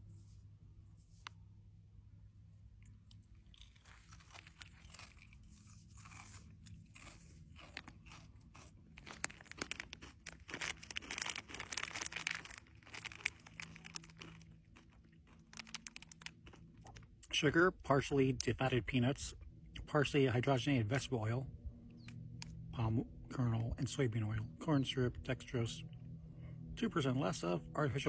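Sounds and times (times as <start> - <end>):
crunching and chewing candy: 2.6 - 28.0
plastic packet crinkling: 3.4 - 17.1.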